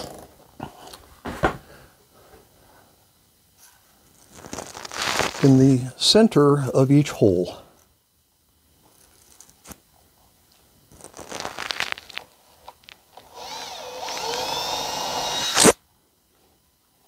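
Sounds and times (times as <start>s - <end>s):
drill cutting into wood: 13.2s - 15.8s
drill motor whining: 13.2s - 15.8s.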